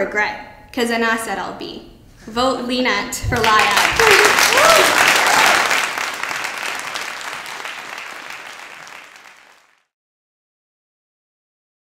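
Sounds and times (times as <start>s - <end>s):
audience applause: 3.4s - 9.9s.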